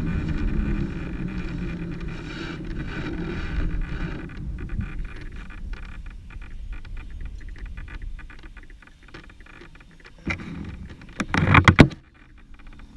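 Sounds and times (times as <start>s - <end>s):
grass and clothing rustling: 0.0s - 12.9s
bump on camera mount: 10.2s - 12.0s.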